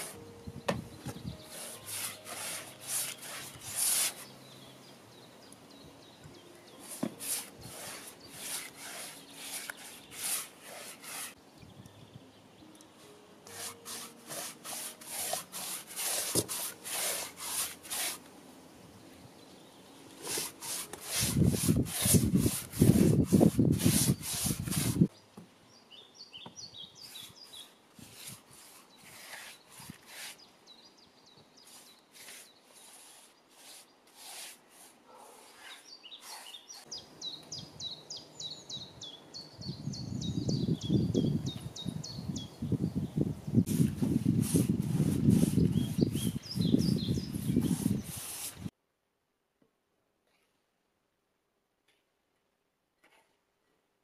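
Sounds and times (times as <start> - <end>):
brush swishing on wooden boards: 0.0 - 0.2, 1.1 - 4.3, 6.8 - 11.4, 13.5 - 18.3, 20.2 - 25.1, 27.0 - 30.5, 31.6 - 37.0, 43.6 - 48.7
small birds chirping: 21.4 - 34.3, 35.1 - 44.2, 45.0 - 48.7.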